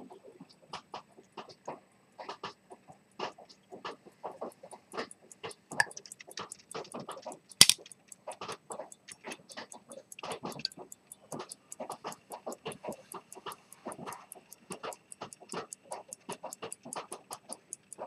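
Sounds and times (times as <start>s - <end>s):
pocket watch ticking: 4.3s - 18.0s
watch case clicks and knocks: 7.6s - 7.8s
loud sharp metal click: 7.6s - 7.9s.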